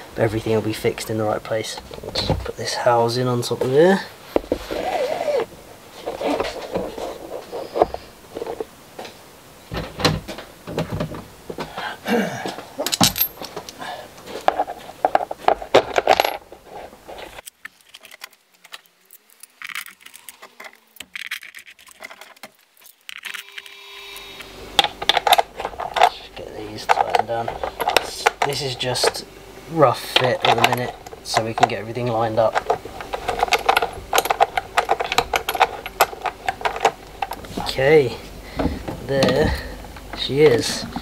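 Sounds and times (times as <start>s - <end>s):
metal washers and nuts clinking: 12.8s - 23.6s, 24.8s - 29.2s, 30.0s - 38.0s.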